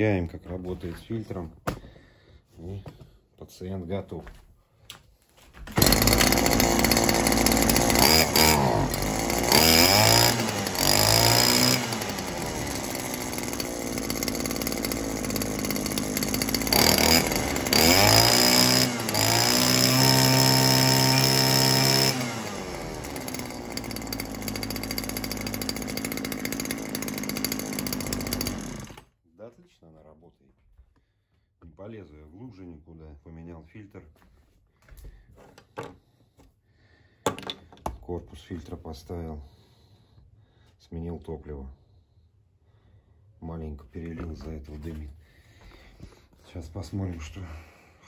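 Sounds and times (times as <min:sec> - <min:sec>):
two-stroke engine idling and revving: 0:05.8 - 0:29.0.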